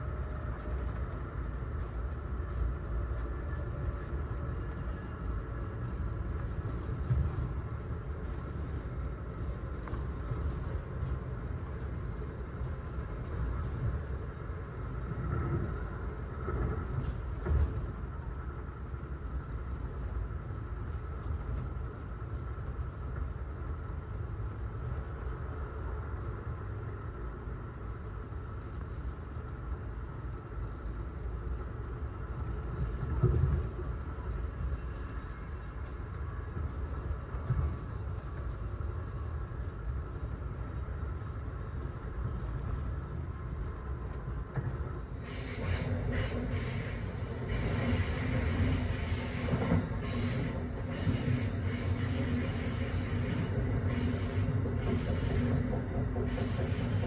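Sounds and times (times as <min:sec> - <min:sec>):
train wheels rumbling on rail: 0:00.0 - 0:57.0
train carriage jolts: 0:45.1 - 0:57.0.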